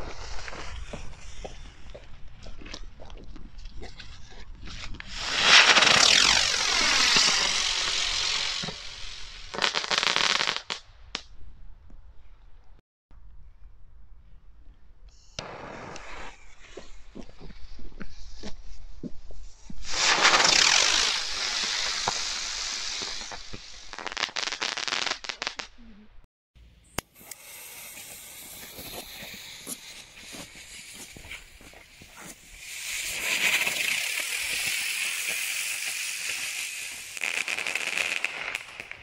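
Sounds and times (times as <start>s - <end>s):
firework hissing as it flies: 5.1s - 10.7s, 19.8s - 25.6s, 27.2s - 39.0s
rapid firework crackling: 5.1s - 10.8s, 19.8s - 25.7s, 27.2s - 39.0s.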